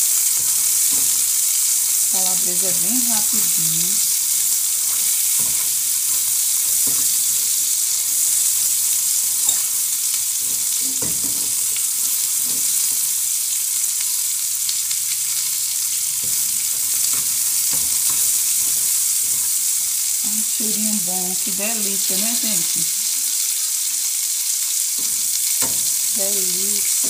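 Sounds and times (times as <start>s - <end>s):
utensil scraping pan: 0.0s - 9.9s
sausage and onion sizzling: 0.0s - 27.0s.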